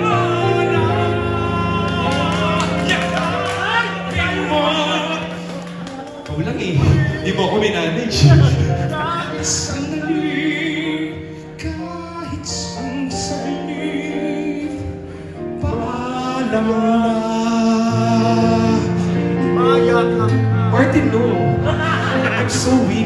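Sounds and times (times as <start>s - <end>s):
backing music: 0.0s - 23.0s
man singing into microphone: 0.0s - 23.0s.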